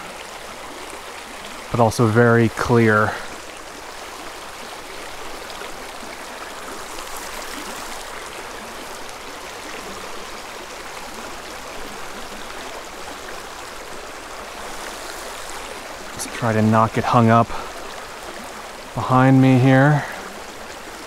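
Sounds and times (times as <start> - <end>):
creek rushing over rocks: 0.0 - 21.0.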